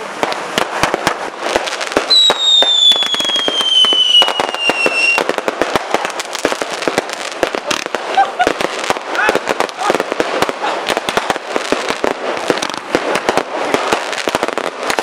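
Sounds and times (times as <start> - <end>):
fireworks bangs and crackles: 0.0 - 15.0
falling pyrotechnic whistle: 2.0 - 5.3.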